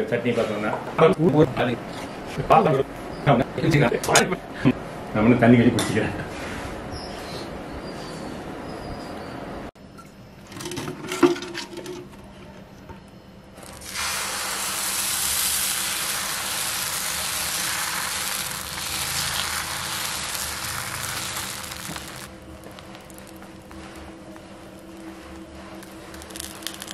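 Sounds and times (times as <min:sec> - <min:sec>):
batter sizzling on griddle: 0:13.6 - 0:26.9.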